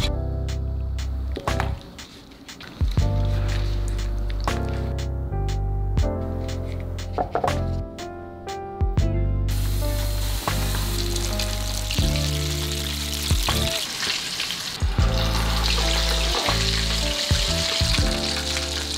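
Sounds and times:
background music: 0:00.0 - 0:14.0, 0:14.7 - 0:18.9
chicken deep-frying in oil: 0:09.5 - 0:18.9.

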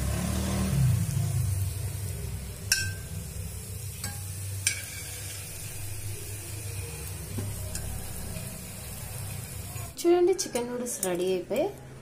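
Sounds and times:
metal tongs clinking: 0:02.7 - 0:03.1, 0:04.0 - 0:05.5, 0:09.8 - 0:11.8.

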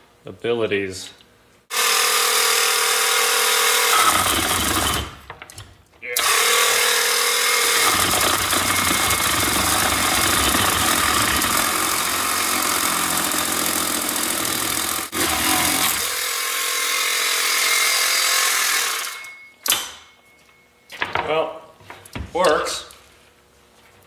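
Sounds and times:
electric chainsaw cutting wood: 0:01.7 - 0:05.2, 0:06.2 - 0:19.3.

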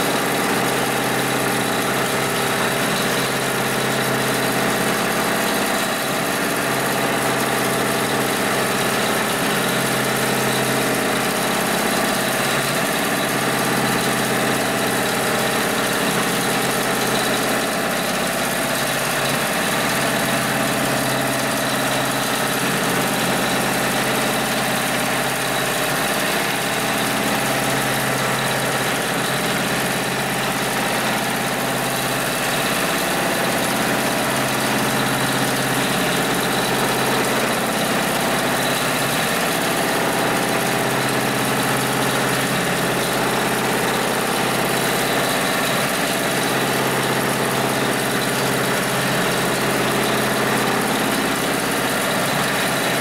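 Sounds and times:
sewing machine running fast: 0:00.0 - 0:53.0.

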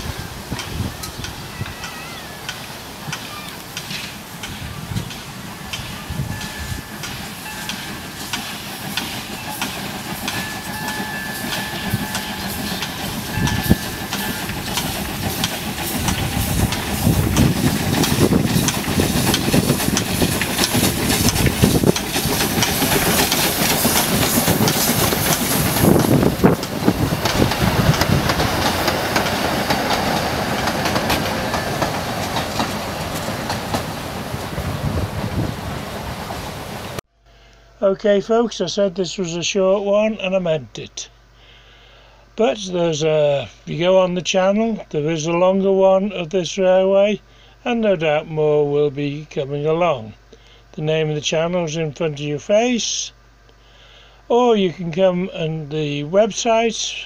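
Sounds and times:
wheels clicking over rail joints: 0:00.0 - 0:35.5
steam hiss: 0:00.0 - 0:37.0
steam locomotive exhaust beats: 0:00.0 - 0:37.8.

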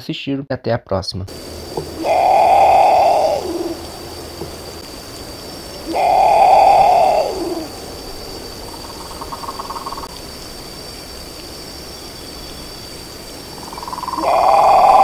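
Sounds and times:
bird pulsed call: 0:01.7 - 0:04.8, 0:05.6 - 0:10.2, 0:12.0 - 0:15.0
bird harsh call: 0:01.8 - 0:04.1, 0:05.7 - 0:07.9, 0:13.6 - 0:15.0.

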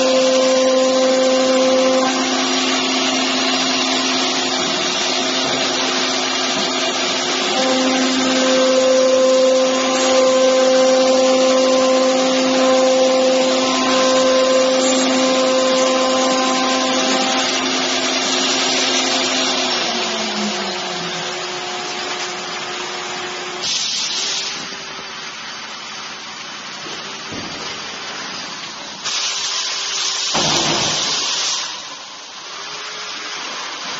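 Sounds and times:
router spindle whining: 0:00.0 - 0:23.6
burst of hiss: 0:23.6 - 0:24.8, 0:29.0 - 0:31.9.

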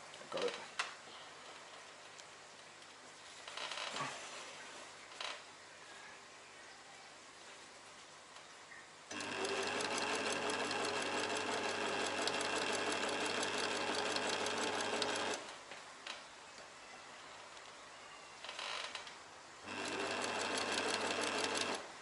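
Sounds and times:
sewing machine stitching: 0:09.1 - 0:15.5, 0:19.6 - 0:21.9.

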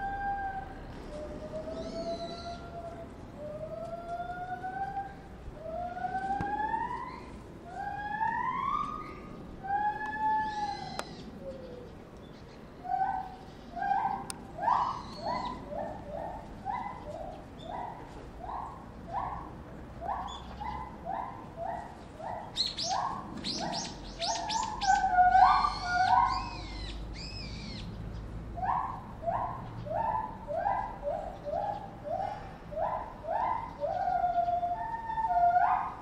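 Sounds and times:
chimpanzee screams: 0:12.9 - 0:15.6, 0:22.9 - 0:27.7.

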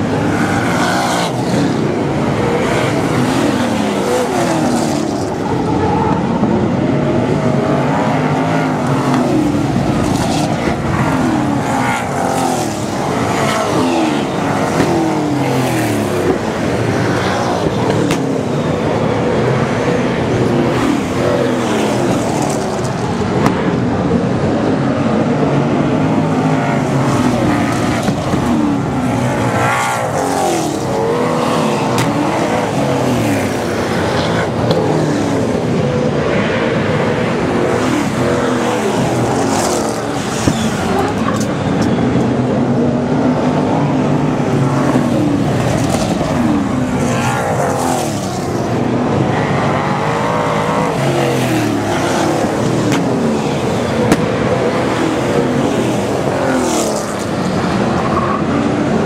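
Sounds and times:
race car engines revving: 0:00.0 - 0:59.0.

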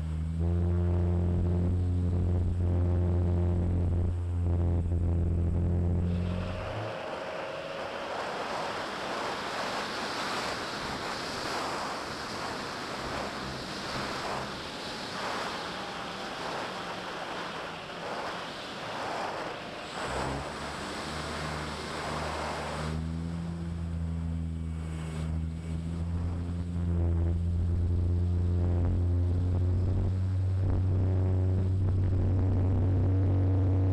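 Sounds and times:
low humming tones: 0:00.0 - 0:33.9
propeller noise: 0:00.0 - 0:33.9
wind rushing: 0:06.1 - 0:23.0.

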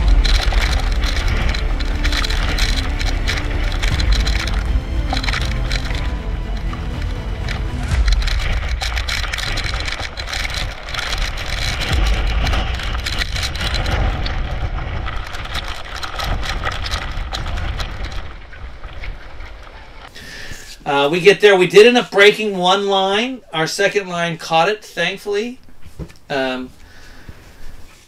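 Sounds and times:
gusting wind rumble: 0:00.0 - 0:21.3
driving rain hiss: 0:00.0 - 0:25.6.

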